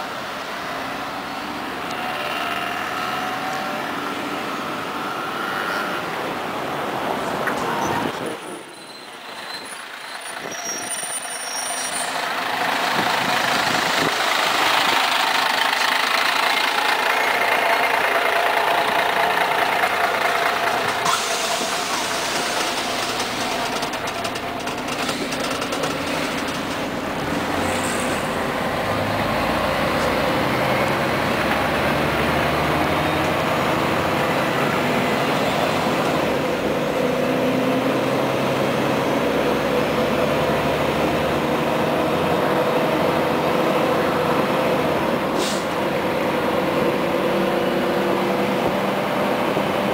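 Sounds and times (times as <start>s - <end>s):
bus diesel engine running: 0.0s - 49.9s.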